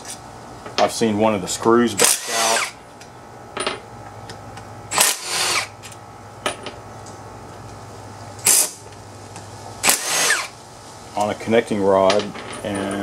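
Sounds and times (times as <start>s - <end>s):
cordless drill whirring: 2.0s - 2.8s, 4.9s - 5.8s, 9.8s - 10.6s.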